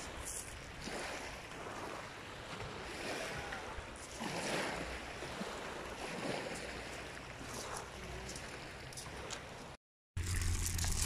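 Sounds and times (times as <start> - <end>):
waves washing onto shingle: 0.0 - 11.0.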